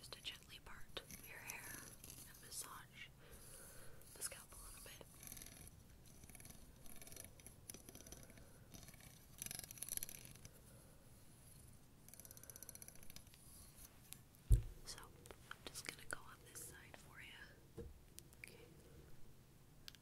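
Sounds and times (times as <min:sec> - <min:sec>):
plastic comb scratching: 0:01.0 - 0:02.4, 0:05.2 - 0:10.5
low thump: 0:14.5 - 0:14.8.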